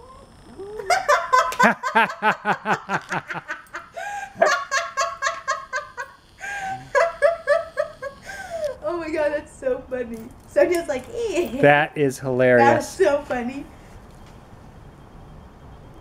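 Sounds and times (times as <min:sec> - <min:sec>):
people laughing hard: 0:00.9 - 0:08.3.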